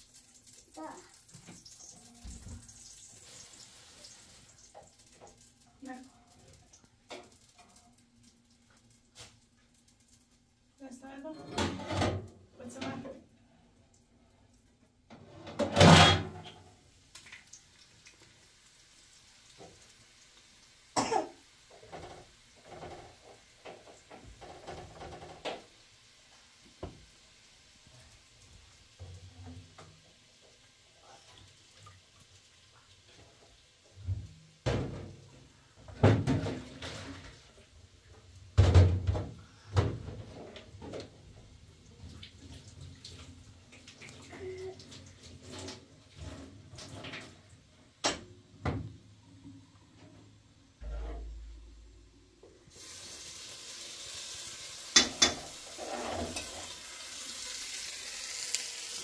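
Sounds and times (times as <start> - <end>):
objects knocking and clattering: 21.8 - 25.7, 34.0 - 37.4, 38.6 - 41.2.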